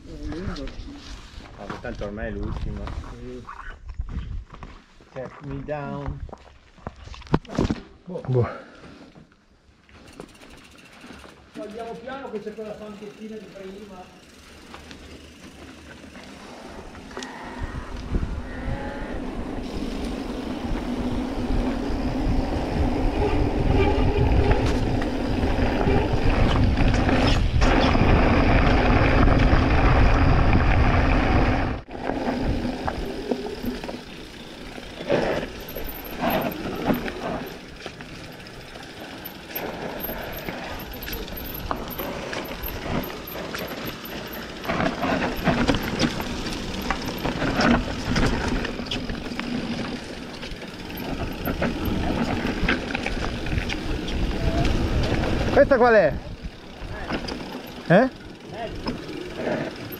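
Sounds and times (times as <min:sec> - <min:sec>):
wind buffeting microphone: 0:17.4 - 0:33.6, 0:50.7 - 0:57.3
tyres rolling over loose ground: 0:19.6 - 0:59.9
bike knocks and rattles: 0:32.1 - 0:55.4.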